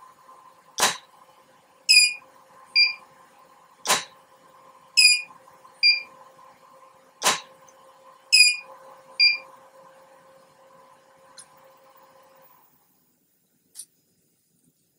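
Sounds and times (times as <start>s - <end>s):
short high beeps: 1.9s - 2.2s, 2.8s - 3.0s, 5.0s - 6.0s, 8.4s - 8.6s, 9.2s - 9.4s.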